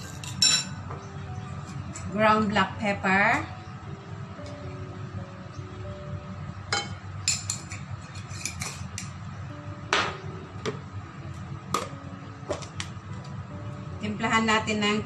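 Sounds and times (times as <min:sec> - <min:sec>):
glass jar clinking on ceramic bowl: 0:00.1 - 0:00.8.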